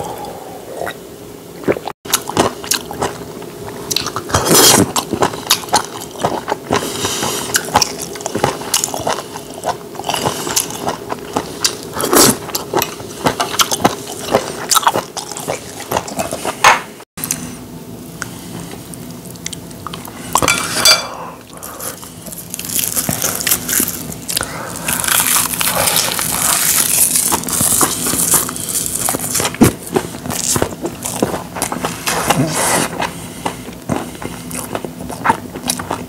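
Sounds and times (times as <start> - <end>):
chewing food: 1.6 - 17.4, 18.5 - 20.5, 21.5 - 36.0.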